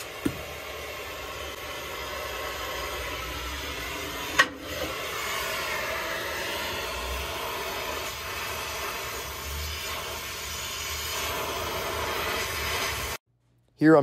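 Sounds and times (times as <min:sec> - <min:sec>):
sharp pop: 0:00.0 - 0:00.5
cutting torch flame hissing: 0:00.0 - 0:13.2.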